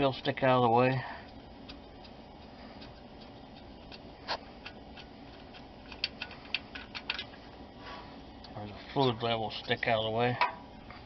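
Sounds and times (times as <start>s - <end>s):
small ticks: 0.8s - 7.2s.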